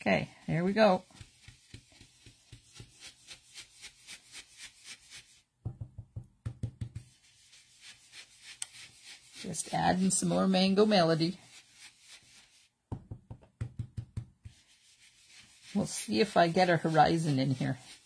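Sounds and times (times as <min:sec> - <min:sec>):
brush tapping on cardstock: 0:01.0 - 0:03.9, 0:05.6 - 0:09.4, 0:11.4 - 0:15.7.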